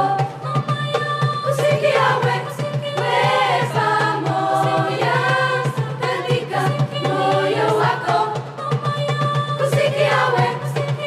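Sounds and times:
youth choir singing: 0.0s - 11.0s.

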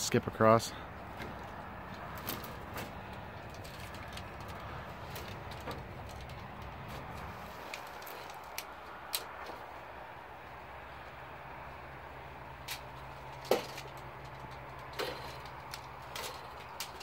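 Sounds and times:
low background noise: 0.0s - 17.0s
cable clamps clinking: 0.9s - 9.7s, 12.6s - 17.0s.

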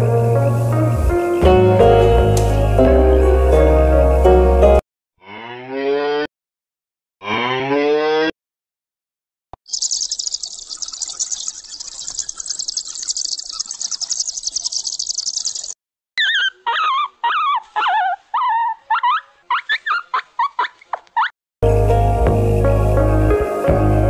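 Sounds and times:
baby chicks peeping: 9.7s - 17.6s
puppies whimpering and whining: 16.2s - 20.1s.

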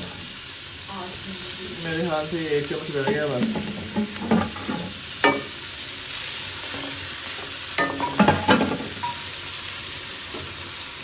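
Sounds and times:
onions sizzling in pot: 0.0s - 11.0s
utensil clattering against pot: 7.8s - 9.2s.

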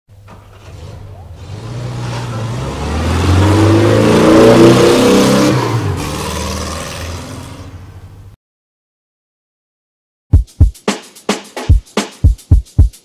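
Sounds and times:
engine revving: 0.3s - 7.9s.

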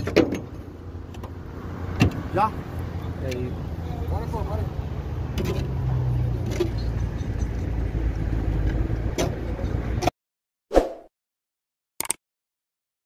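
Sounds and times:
vehicle engine rumbling: 0.0s - 10.1s
mouse click sound effect: 12.0s - 12.2s.

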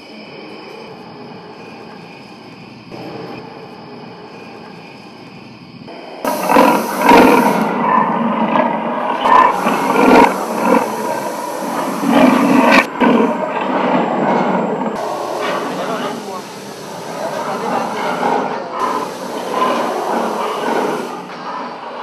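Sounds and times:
dinosaur roars and growls: 6.2s - 22.0s.

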